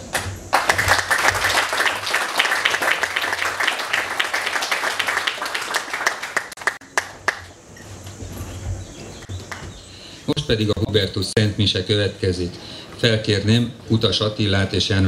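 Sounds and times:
audience applauding: 0.1 - 7.5.

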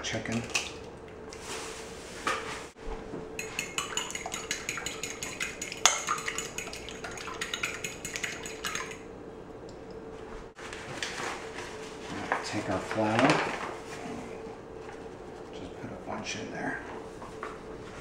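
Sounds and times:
fork clinking against glass bowl: 3.4 - 9.0
paper bag rustling: 10.6 - 14.1.

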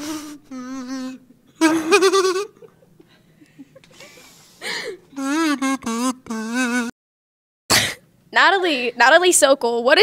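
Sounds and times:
kazoo buzzing: 0.0 - 2.7, 5.1 - 7.0.

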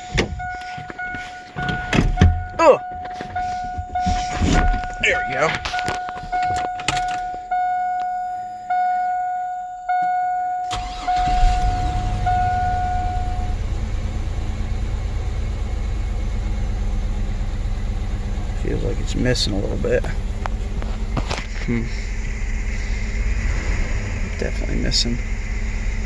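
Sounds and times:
dashboard warning chime: 0.0 - 13.7
engine starting and idling: 10.6 - 16.5.

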